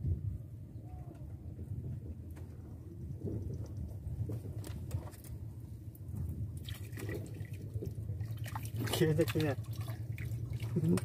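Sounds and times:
steady low hum: 0.0s - 11.0s
water splashing and dripping: 6.5s - 11.0s.

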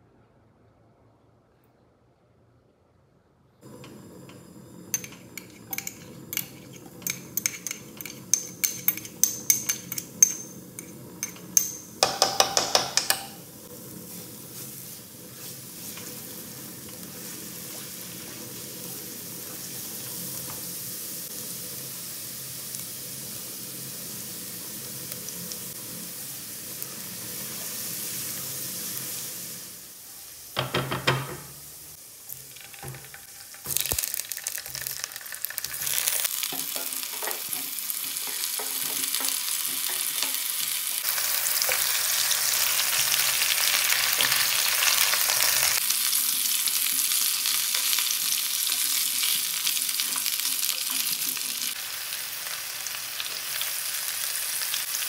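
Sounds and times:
garlic sizzling in oil: 3.6s - 55.0s
utensils tapping and scraping pot: 3.8s - 13.5s, 32.3s - 43.3s
potatoes knocking into pot: 12.0s - 13.4s.

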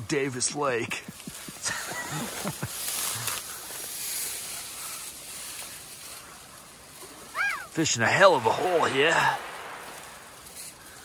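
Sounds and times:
river water rushing: 7.5s - 11.0s.

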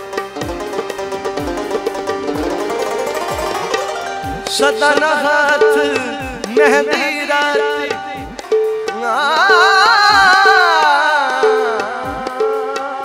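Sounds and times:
drum beat: 0.0s - 11.0s
man singing folk song: 4.4s - 13.0s.

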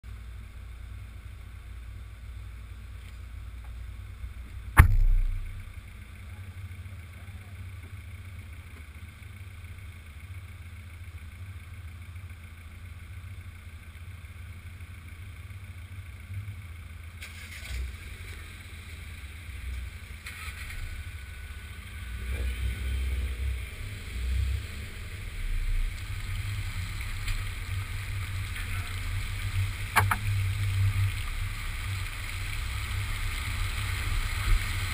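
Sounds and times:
car engine idling: 0.0s - 34.9s
sharp knock: 4.8s - 5.7s, 30.0s - 30.2s.

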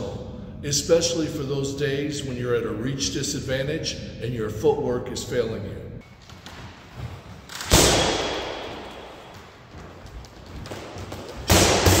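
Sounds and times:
punches hitting a heavy bag: 11.4s - 12.0s.

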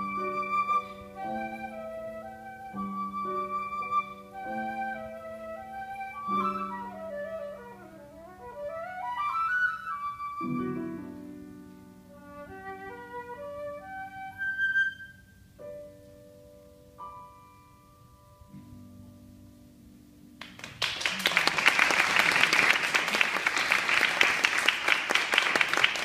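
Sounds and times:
flute playing classical solo: 0.0s - 11.3s, 12.1s - 15.5s.

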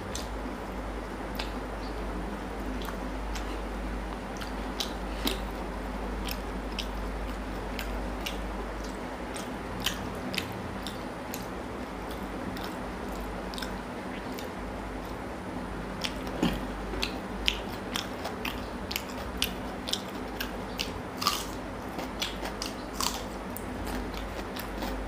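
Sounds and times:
steady low hum: 0.0s - 25.0s
person chewing wet mouth smacks: 2.8s - 3.5s.

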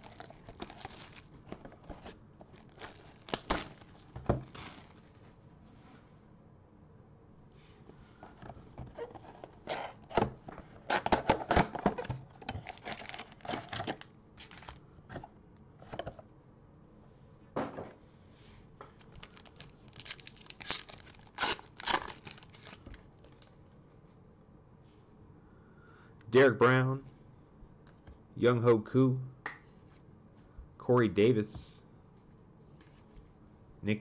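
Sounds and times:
cardboard ripping: 0.0s - 5.0s, 12.6s - 14.8s, 19.2s - 23.0s
foil pack ripping: 0.0s - 5.1s, 12.5s - 14.8s, 19.0s - 23.5s
packaging rustling and crinkling: 0.0s - 5.3s, 8.2s - 15.3s, 18.9s - 23.6s.

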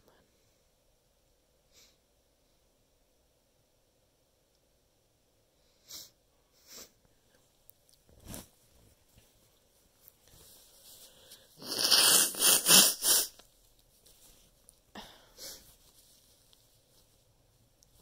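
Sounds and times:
person sniffing: 5.7s - 7.0s, 10.9s - 13.4s, 15.0s - 15.8s
forceful nasal air blasts: 11.6s - 13.4s.

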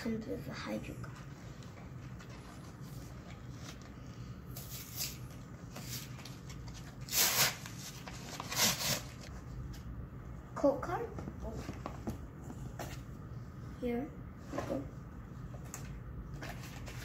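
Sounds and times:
cardboard packaging tearing: 7.0s - 9.3s.

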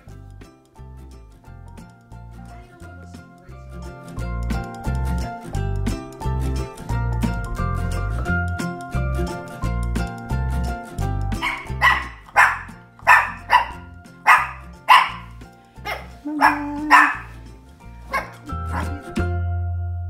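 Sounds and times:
background music: 0.0s - 20.0s
puppy barking: 11.4s - 17.4s, 18.1s - 19.0s.

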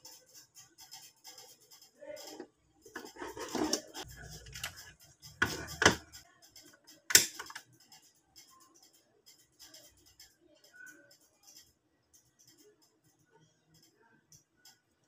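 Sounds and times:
plastic clicks and knocks: 5.4s - 6.1s.

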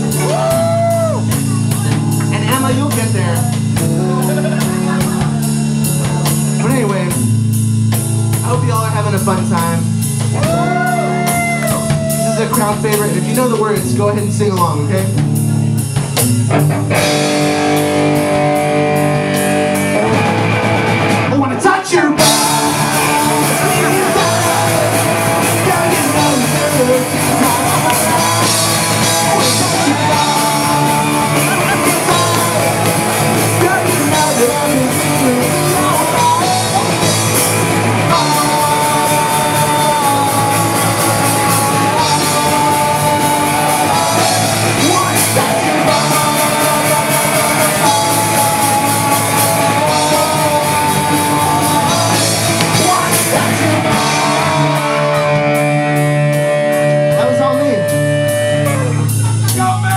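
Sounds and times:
punk rock band playing live: 0.0s - 59.9s
person singing long notes: 22.2s - 37.4s, 38.0s - 56.1s.

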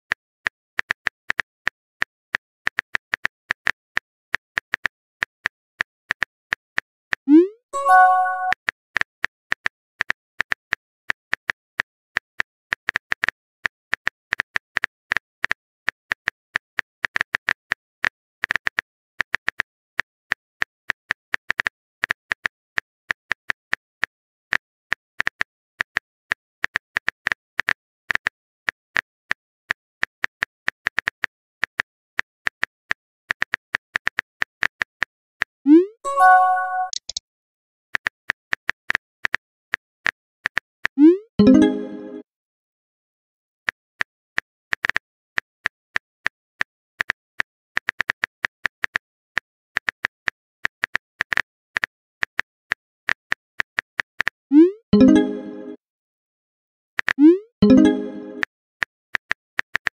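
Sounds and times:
keyboard key-tap clicks: 36.2s - 37.2s.

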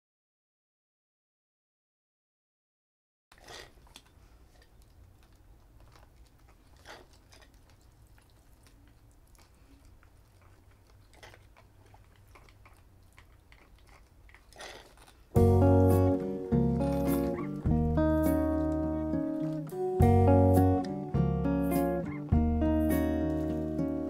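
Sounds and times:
background music: 15.4s - 24.0s.

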